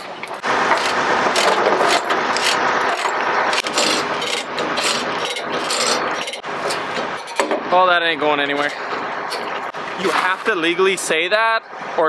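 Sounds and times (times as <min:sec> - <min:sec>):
chain rattling: 0:00.2 - 0:07.4.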